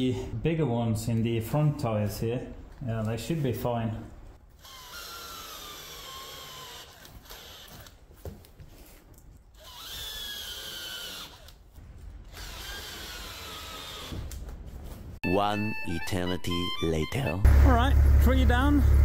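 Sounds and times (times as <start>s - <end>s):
cordless drill motor whining: 4.6s - 8.0s, 9.6s - 11.6s, 12.3s - 14.3s.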